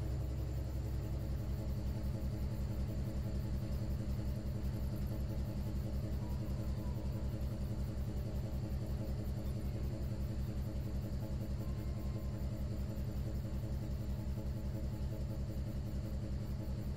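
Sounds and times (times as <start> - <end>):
ship engine droning: 5.6 - 16.9.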